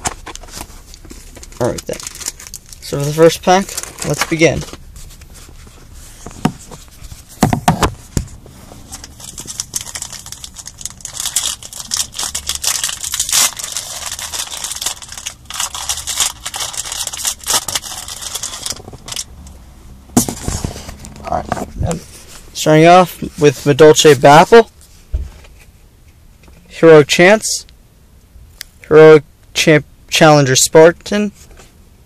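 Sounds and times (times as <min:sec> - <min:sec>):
foil pack tearing and crinkling: 0:01.3 - 0:04.4, 0:09.0 - 0:19.3.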